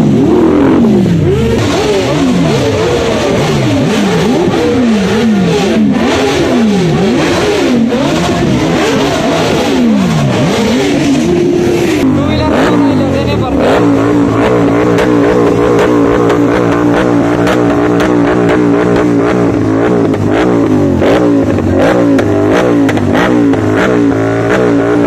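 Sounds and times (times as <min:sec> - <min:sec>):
vehicle engine revving: 0:00.0 - 0:25.0.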